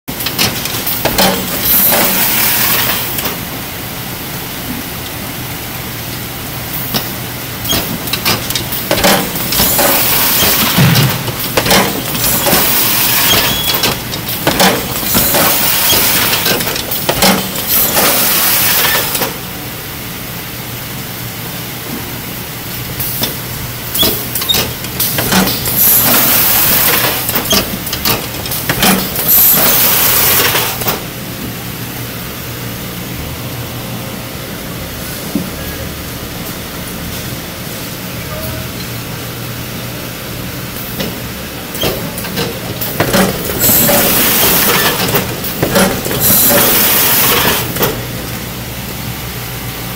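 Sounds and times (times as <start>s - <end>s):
cartons clattering and hissing: 0.2s - 3.4s, 6.8s - 19.4s, 23.0s - 31.0s, 41.8s - 48.0s.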